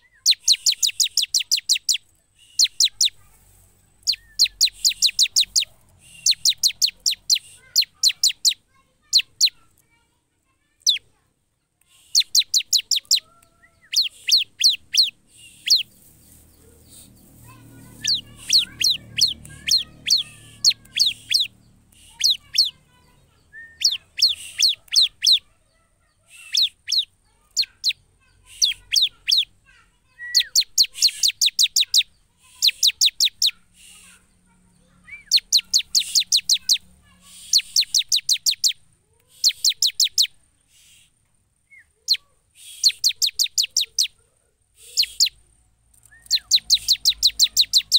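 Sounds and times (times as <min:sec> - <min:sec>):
bird singing high clipped notes: 0:00.0 - 0:03.3, 0:04.0 - 0:09.8, 0:11.9 - 0:25.4, 0:30.2 - 0:34.2, 0:34.8 - 0:41.1, 0:41.7 - 0:44.1, 0:44.8 - 0:45.4, 0:46.0 - 0:47.9.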